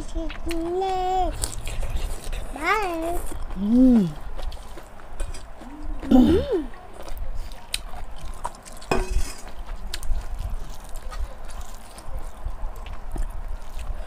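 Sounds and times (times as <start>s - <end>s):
hands mixing rice and meat: 6.8s - 14.0s
steel bowl clinking: 8.9s - 9.4s.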